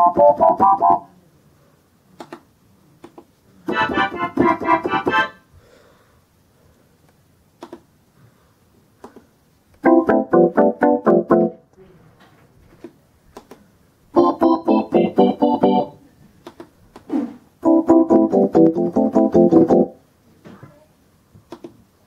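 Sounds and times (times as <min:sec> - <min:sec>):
electronic keyboard organ runs: 0:00.0 - 0:01.0, 0:03.7 - 0:05.4, 0:09.8 - 0:11.6, 0:14.2 - 0:16.0, 0:17.6 - 0:20.0.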